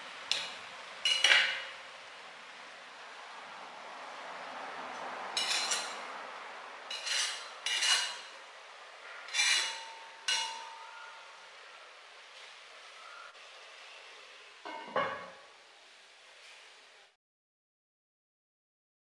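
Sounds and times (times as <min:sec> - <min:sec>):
metal spoon scraping a pot: 0:05.4 - 0:06.0, 0:06.9 - 0:08.4, 0:09.3 - 0:10.9.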